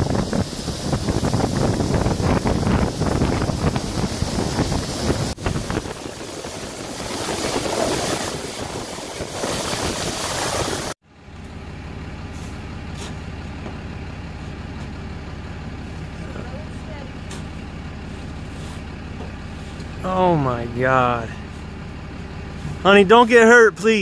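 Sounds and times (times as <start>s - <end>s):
diesel engine rumble: 0.0s - 24.0s
plow blade pushing slush: 3.2s - 11.0s, 15.8s - 20.6s.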